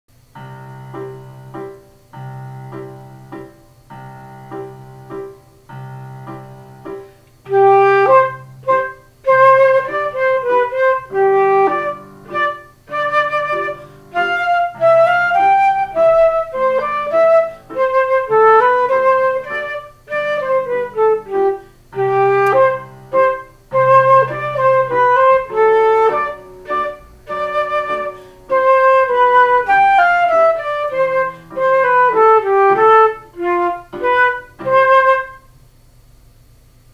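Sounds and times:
flute playing melody: 0:07.5 - 0:35.5.

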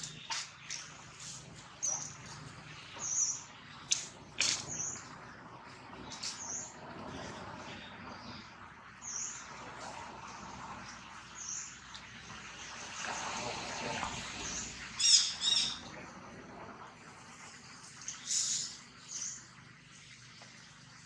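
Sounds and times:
wild birds chirping: 0:00.0 - 0:11.9, 0:14.4 - 0:16.4, 0:17.8 - 0:20.2
steady outdoor background hum: 0:00.0 - 0:21.0.

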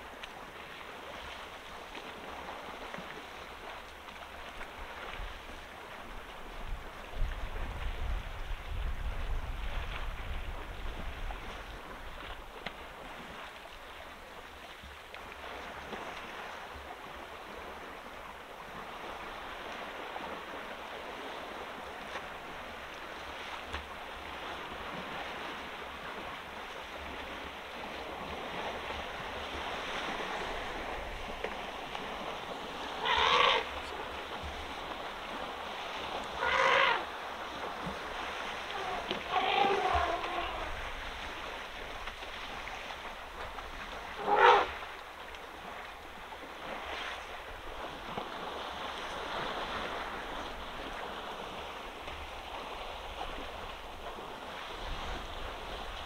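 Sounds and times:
elephants splashing through water: 0:09.3 - 0:56.0
elephant call: 0:33.0 - 0:33.7, 0:36.4 - 0:37.0, 0:38.7 - 0:40.7, 0:44.2 - 0:44.8.

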